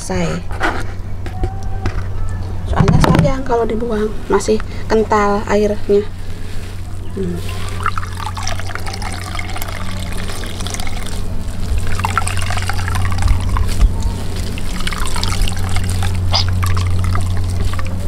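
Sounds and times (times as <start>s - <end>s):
water pouring into a basin: 7.4s - 18.0s
pulp being squeezed: 7.7s - 18.0s.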